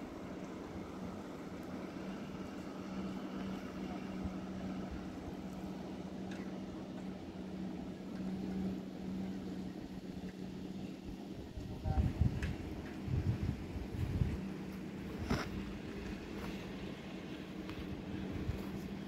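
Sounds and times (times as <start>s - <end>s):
pump machinery humming: 0.0s - 19.0s.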